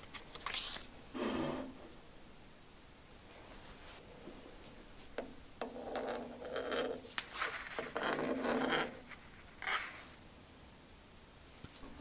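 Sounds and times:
pencil scratching on wood: 0:05.6 - 0:10.2.

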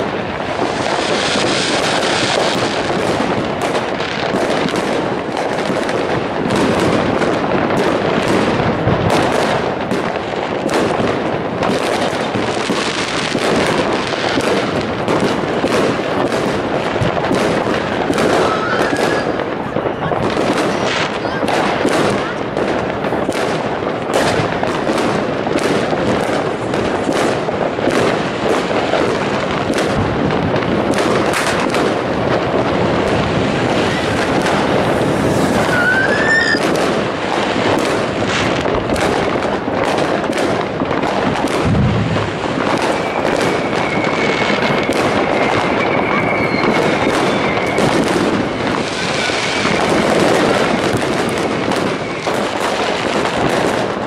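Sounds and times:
fireworks bangs and crackling: 0:00.0 - 0:54.0
deep firework boom: 0:00.5 - 0:53.8
firework whistle: 0:17.2 - 0:22.4, 0:33.0 - 0:37.4, 0:41.4 - 0:52.8.

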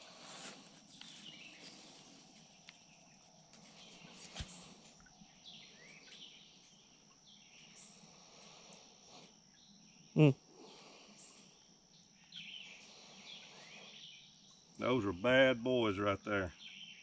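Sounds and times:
high insect drone: 0:00.0 - 0:17.0
man grunting: 0:10.2 - 0:10.4.

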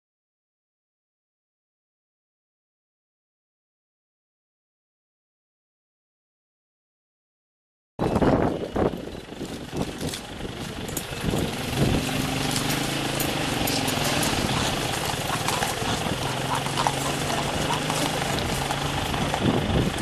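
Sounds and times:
engine idling hum: 0:08.0 - 0:20.0
horse hooves clip-clopping on pavement: 0:08.0 - 0:20.0
crowd voices: 0:09.8 - 0:20.0.

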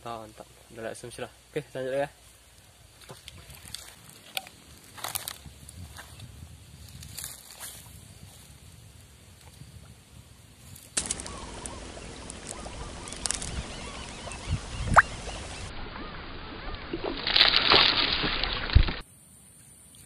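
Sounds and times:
loud fish splash: 0:14.9 - 0:19.0.

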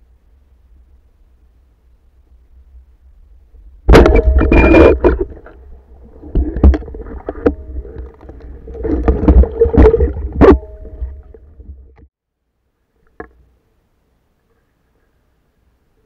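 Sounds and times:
low underwater rumble: 0:02.3 - 0:12.1
fish thrashing underwater: 0:04.0 - 0:12.0
water churning: 0:04.0 - 0:12.0.

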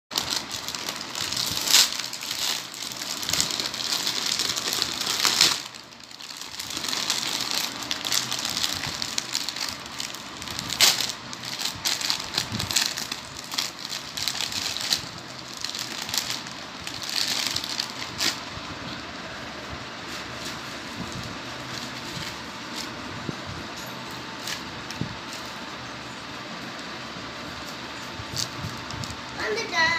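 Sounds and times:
plastic bag crinkling: 0:00.1 - 0:18.6, 0:20.2 - 0:23.1.

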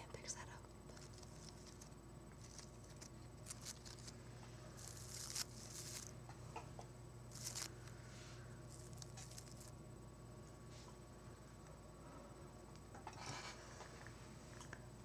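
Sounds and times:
hands rustling through flowers: 0:01.0 - 0:04.2, 0:04.8 - 0:06.1, 0:07.3 - 0:07.8, 0:08.7 - 0:09.7.

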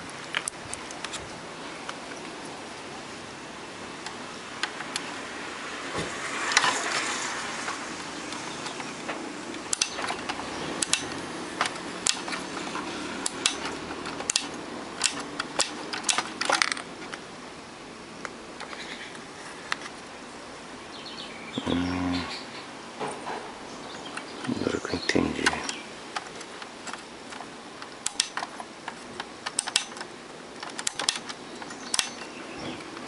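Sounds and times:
plastic switch clicks: 0:09.6 - 0:10.1, 0:10.8 - 0:12.4, 0:13.2 - 0:16.8, 0:27.9 - 0:32.2.

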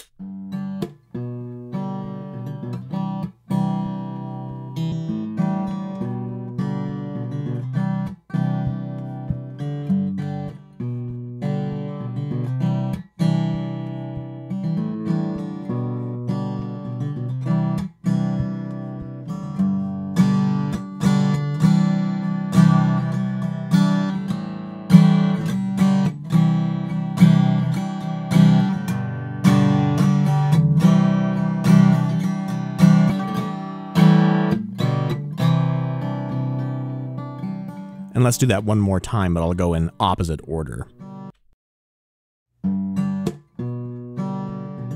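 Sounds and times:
acoustic guitar strumming chords: 0:37.9 - 0:41.3.

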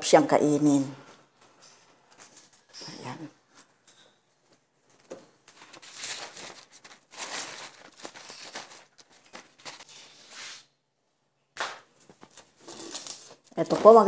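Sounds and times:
paper towels rustling and crinkling: 0:05.0 - 0:10.6.

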